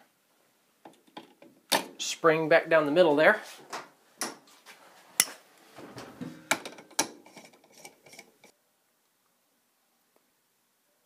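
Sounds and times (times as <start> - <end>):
plastic parts clicking and knocking: 0.8 - 2.0, 6.3 - 8.5.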